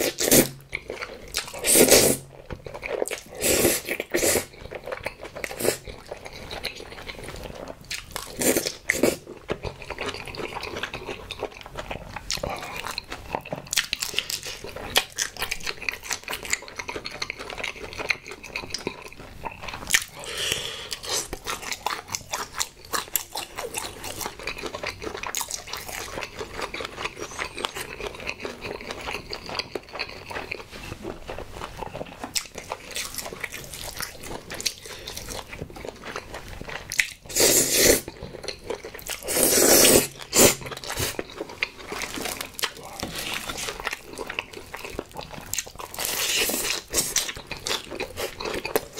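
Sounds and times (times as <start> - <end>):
crispy bites and chewing: 40.0 - 48.9.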